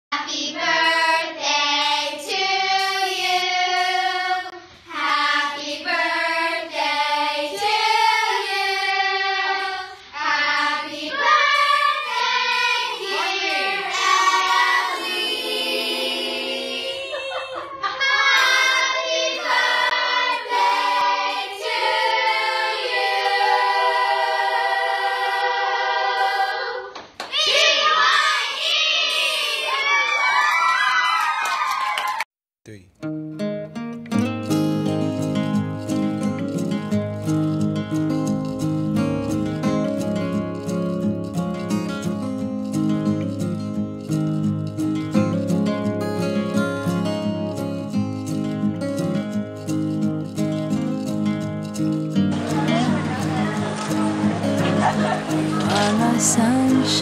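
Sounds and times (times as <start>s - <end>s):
girls singing together: 0.2s - 30.1s, 52.4s - 57.0s
girls shouting and cheering: 27.3s - 32.3s.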